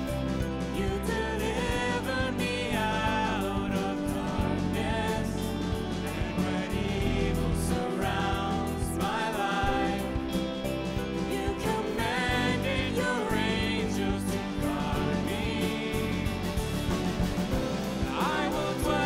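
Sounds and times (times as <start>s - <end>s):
bass: 0.0s - 19.0s
electric guitar: 0.0s - 19.0s
piano: 0.0s - 19.0s
steady drum beat: 0.0s - 19.0s
woman singing: 0.6s - 5.6s, 11.2s - 16.5s.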